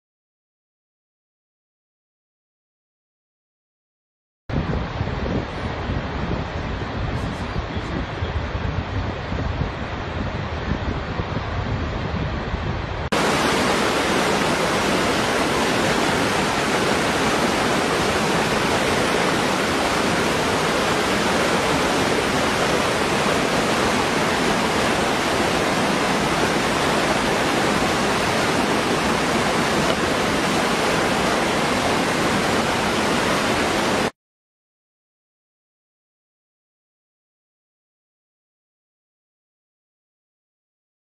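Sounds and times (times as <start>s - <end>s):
waterfall pouring into pool: 13.1s - 34.1s.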